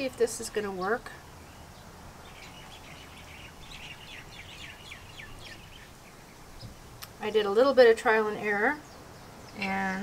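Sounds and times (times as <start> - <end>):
bird chirping faintly: 0.6 - 7.4.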